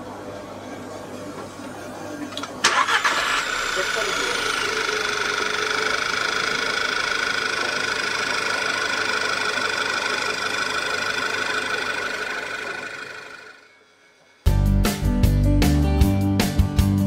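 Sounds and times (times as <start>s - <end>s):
car engine idling: 2.7s - 13.6s.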